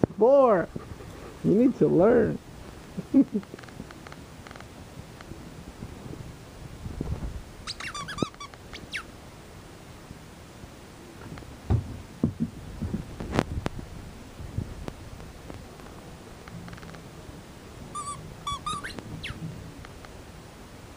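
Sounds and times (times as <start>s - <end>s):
puppy squeaking: 7.6s - 9.1s, 17.9s - 19.4s.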